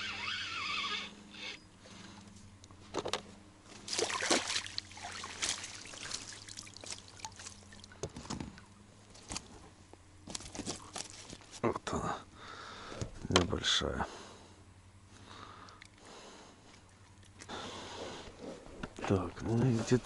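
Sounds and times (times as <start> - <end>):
fish splashing at surface: 3.8 - 8.0
water trickling off net: 3.8 - 8.0.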